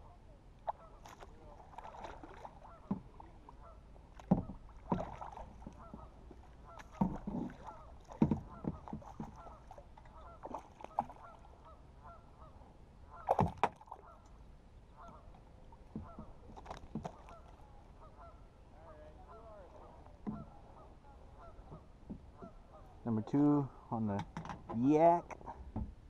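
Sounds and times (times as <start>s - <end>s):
geese honking: 1.8s - 3.0s, 3.6s - 3.8s, 5.3s - 13.4s, 14.9s - 15.3s, 16.0s - 16.3s, 17.1s - 23.0s.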